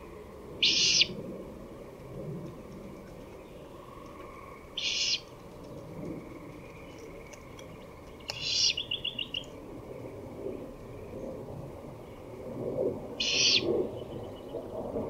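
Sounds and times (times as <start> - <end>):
owl chick hissing screeches: 0.6 - 1.1, 4.8 - 5.2, 13.2 - 13.6
owl clicks: 7.0 - 9.6.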